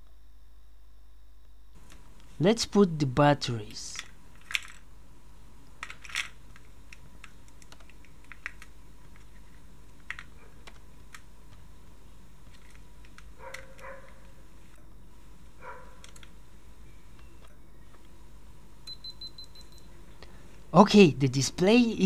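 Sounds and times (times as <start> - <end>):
batteries and plastic clicking: 3.9 - 4.9, 5.6 - 11.7, 12.4 - 14.4, 16.0 - 16.4.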